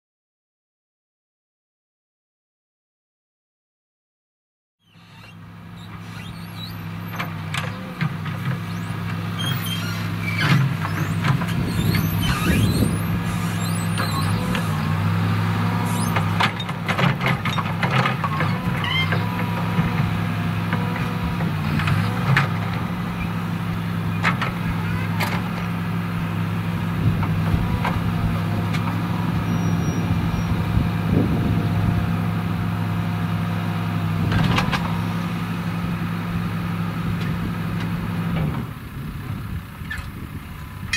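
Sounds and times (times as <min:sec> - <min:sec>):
short squeaks: 0:04.8 - 0:25.7, 0:28.8 - 0:30.7
engine idling: 0:04.8 - 0:38.2.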